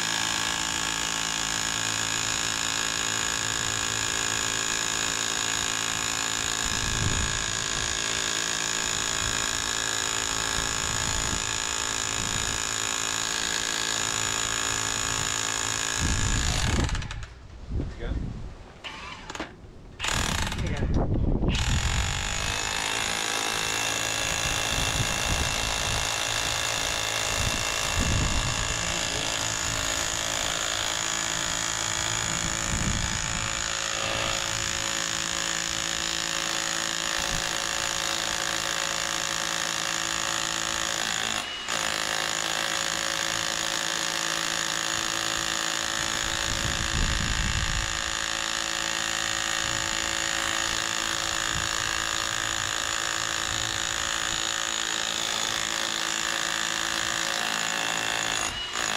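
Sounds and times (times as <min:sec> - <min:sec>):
demolition hammer running: 0:00.0 - 0:17.3, 0:20.0 - 0:20.9, 0:21.5 - 0:58.9.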